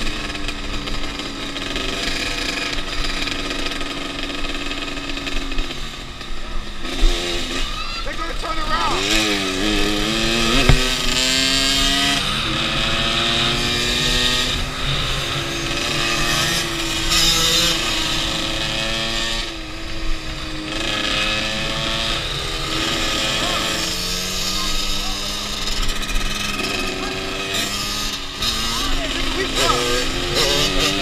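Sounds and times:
dirt bike engines revving: 0.0 - 31.0
sharp knock: 10.6 - 11.2.

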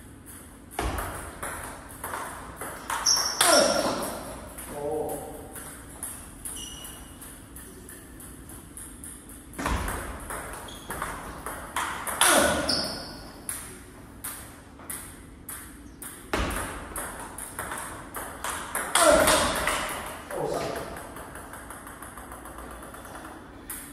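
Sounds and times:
table tennis ball off bats: 0.2 - 23.9
ball bouncing on table: 0.3 - 23.9.

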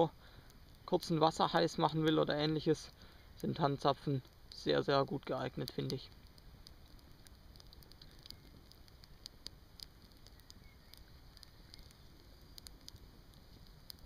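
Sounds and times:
fire crackling and popping: 0.0 - 14.0.

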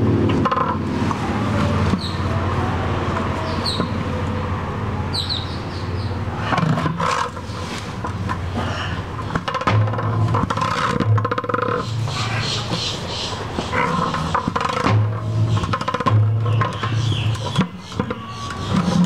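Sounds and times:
balls rolling on concrete: 0.0 - 1.2, 6.4 - 19.0
balls knocking: 9.2 - 19.0.

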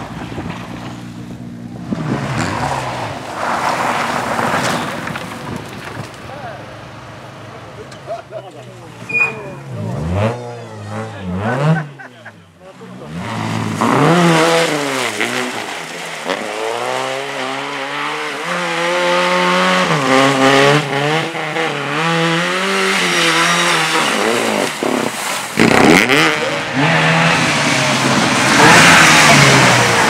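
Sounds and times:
rally car engine revving hard: 9.6 - 12.1, 12.9 - 30.0.

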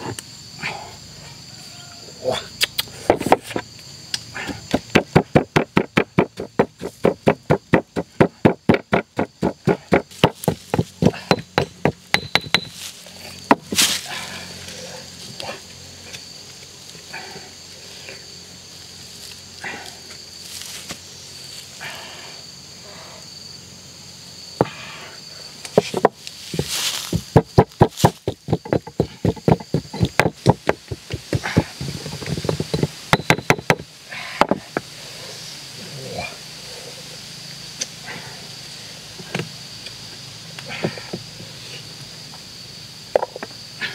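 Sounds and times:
insects buzzing: 0.0 - 43.9
pestle pounding in stone mortar: 4.5 - 12.8, 25.8 - 34.6.

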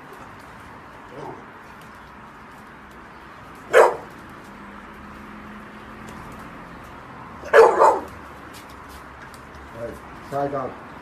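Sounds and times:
dog barking: 3.7 - 4.1, 7.4 - 8.1.

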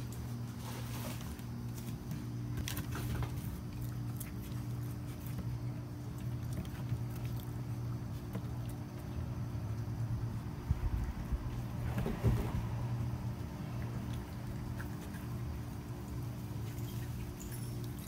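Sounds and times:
raccoons chewing and pattering: 0.0 - 11.8, 12.9 - 18.0
steady low hum: 0.0 - 18.0.

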